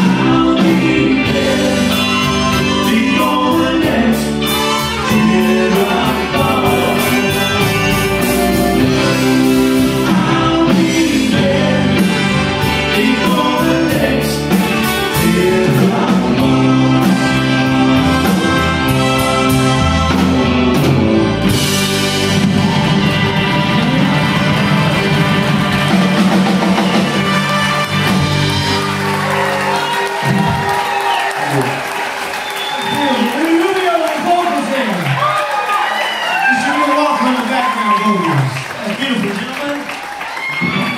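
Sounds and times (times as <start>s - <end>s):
person singing: 0.0s - 20.9s
keyboard: 0.0s - 31.8s
electric guitars: 0.0s - 32.0s
drums: 0.0s - 40.9s
trumpet: 4.2s - 30.8s.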